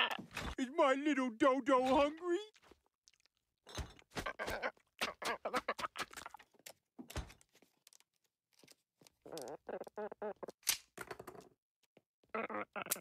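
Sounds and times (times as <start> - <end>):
cartoon wet crunching: 2.5 - 3.4, 4.2 - 6.5.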